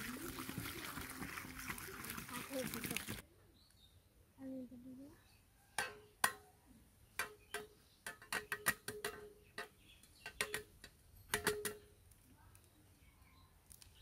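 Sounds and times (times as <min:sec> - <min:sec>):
eggs cracking against metal bowl: 0:07.2 - 0:12.0.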